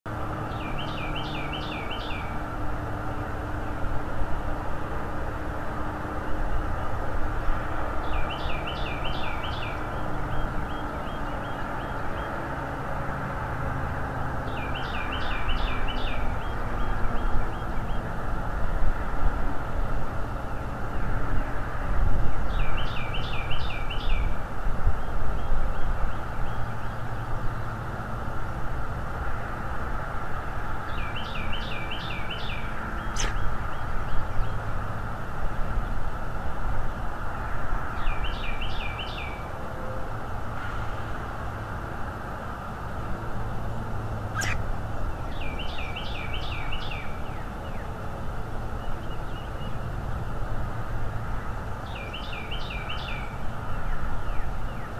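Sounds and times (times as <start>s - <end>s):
songbird singing: 0.1s - 4.9s, 5.8s - 19.1s, 22.4s - 28.0s, 30.4s - 36.1s, 36.9s - 40.1s, 43.0s - 50.4s, 51.1s - 54.9s.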